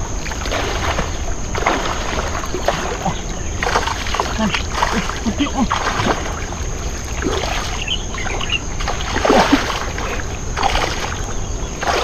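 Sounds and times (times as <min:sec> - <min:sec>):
river water splashing: 0:00.0 - 0:12.0.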